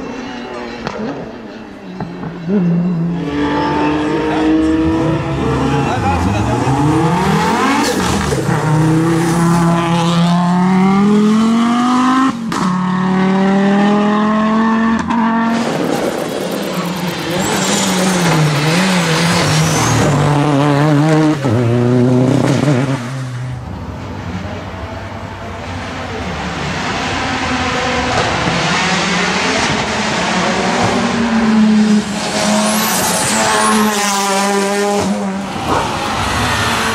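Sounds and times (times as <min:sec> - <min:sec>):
race car engines revving: 0:00.0 - 0:36.9
tire squeal: 0:15.4 - 0:20.6, 0:32.2 - 0:36.9.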